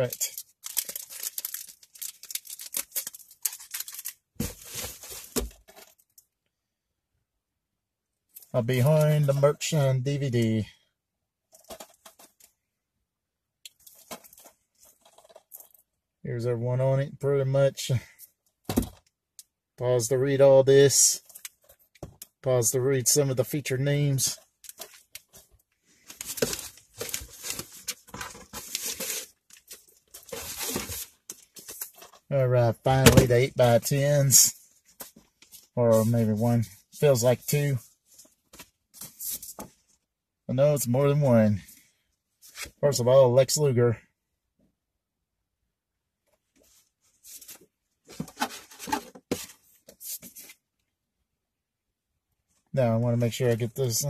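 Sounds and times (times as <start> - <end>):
packaging rustling and crinkling: 0.3 - 6.0, 24.6 - 32.2.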